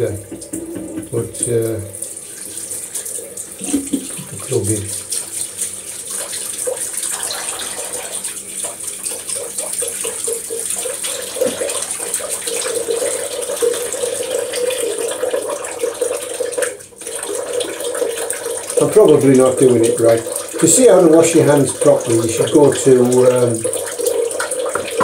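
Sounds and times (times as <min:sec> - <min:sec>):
hands washing with soap: 0:00.0 - 0:15.6, 0:17.6 - 0:25.0
tap running into washbasin: 0:00.0 - 0:25.0.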